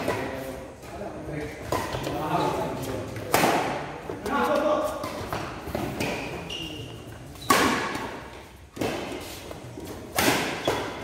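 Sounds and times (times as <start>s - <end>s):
shoes squeaking on court: 1.5s - 3.2s, 4.2s - 11.0s
racket striking shuttlecock: 7.4s - 11.0s.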